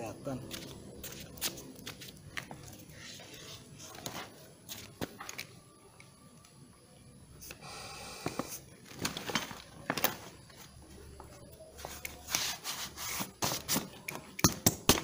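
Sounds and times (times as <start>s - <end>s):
air hissing: 7.4s - 8.7s.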